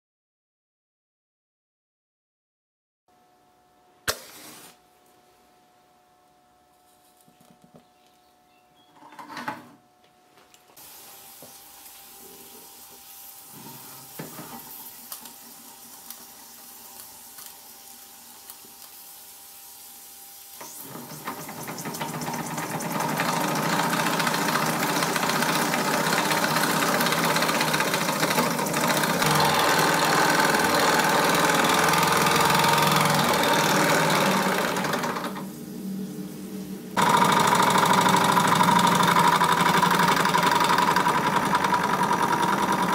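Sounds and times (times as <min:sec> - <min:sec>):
faint steam hiss: 0:04.0 - 0:06.0, 0:10.6 - 0:29.2, 0:29.8 - 0:40.9
exhaust steam hissing: 0:19.0 - 0:42.9
steam engine mechanical beat: 0:21.2 - 0:35.4, 0:37.0 - 0:42.9.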